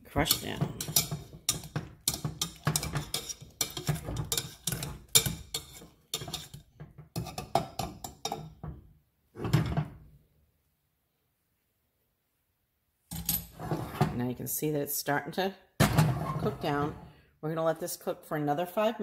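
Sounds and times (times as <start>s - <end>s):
metal masher clanking in a pan: 0.1s - 8.6s.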